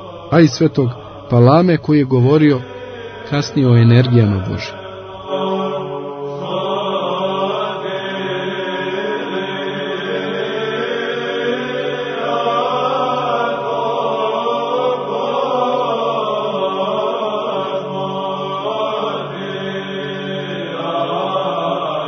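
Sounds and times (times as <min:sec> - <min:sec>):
low held drone note: 0:00.0 - 0:06.5
voices chanting slow melody: 0:00.0 - 0:22.0.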